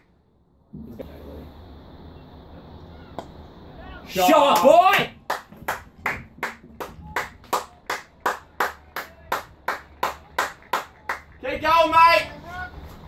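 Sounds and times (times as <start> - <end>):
person clapping: 5.3 - 11.4.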